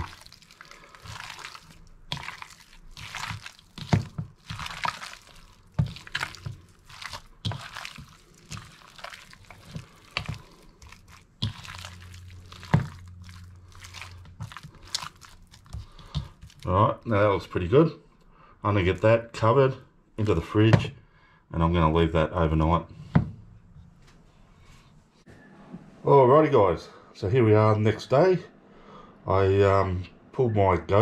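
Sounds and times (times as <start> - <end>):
hands squishing wet marinade: 0.0 - 17.8, 18.6 - 19.5, 20.2 - 21.0.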